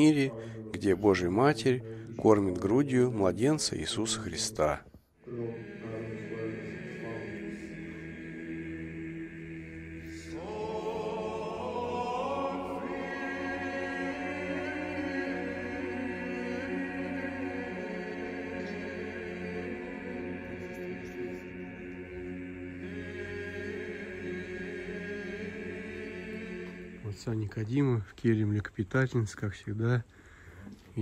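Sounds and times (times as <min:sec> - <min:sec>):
men singing chant: 0:05.2 - 0:27.5.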